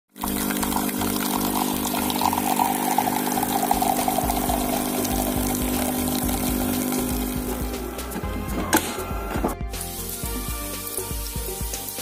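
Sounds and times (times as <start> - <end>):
espresso streaming into cup: 0.1 - 8.3
espresso machine pump humming: 0.1 - 9.5.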